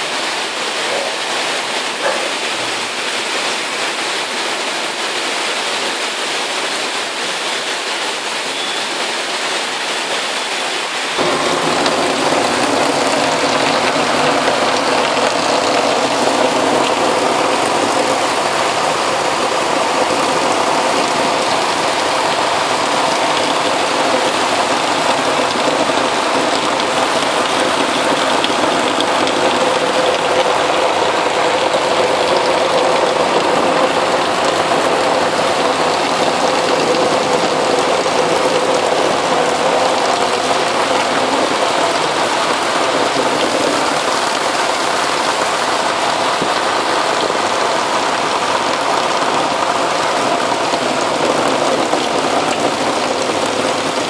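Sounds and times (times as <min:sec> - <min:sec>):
heavy rain pouring: 0:00.0 - 0:54.0
engine hum: 0:11.2 - 0:54.0.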